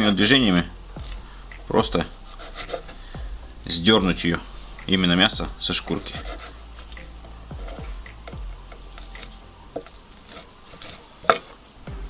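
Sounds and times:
cleaver scraping fish flesh: 2.3 - 3.1, 4.1 - 11.6.

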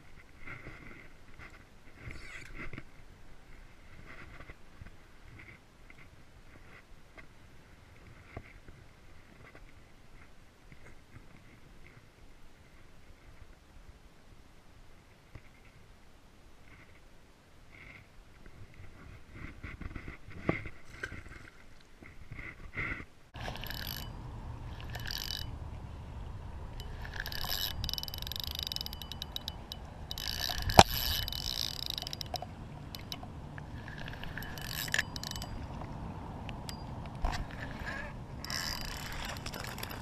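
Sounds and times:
fishing reel rustling and clicking: 23.4 - 40.0
wind rumble on microphone: 23.4 - 40.0.

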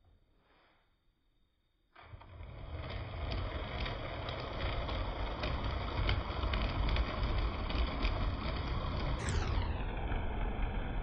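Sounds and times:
model train running on track: 2.6 - 9.2.

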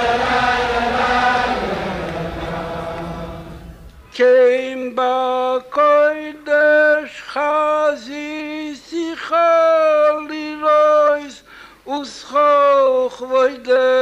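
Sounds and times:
crowd of men singing: 0.0 - 4.6
solo male voice singing: 4.1 - 14.0.

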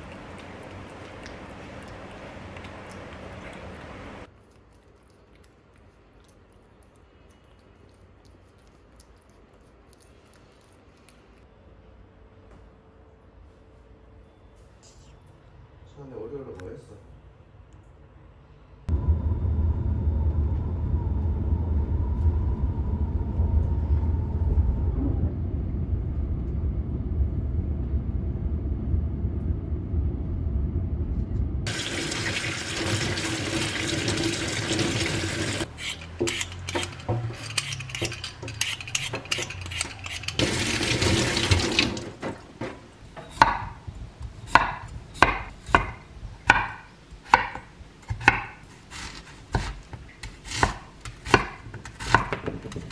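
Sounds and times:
knife chopping on wooden board: 43.4 - 43.8, 44.6 - 48.6, 49.5 - 52.9.

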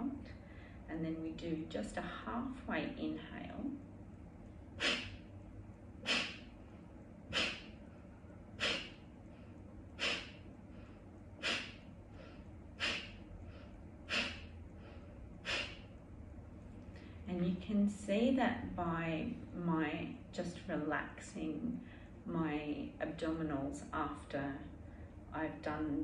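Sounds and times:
faint inhales: 0.3 - 0.9, 4.8 - 5.3, 6.0 - 6.5, 7.3 - 16.0, 21.8 - 22.2
sharp forceful nasal exhales: 4.8 - 5.3, 6.0 - 6.5, 7.3 - 7.9, 8.6 - 9.1, 10.0 - 15.9.

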